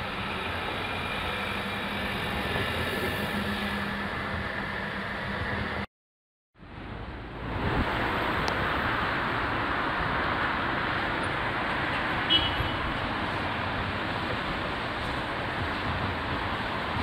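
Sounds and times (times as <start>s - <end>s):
tram passing on tracks: 0.0s - 5.9s, 6.6s - 17.0s
cars passing: 6.6s - 17.0s.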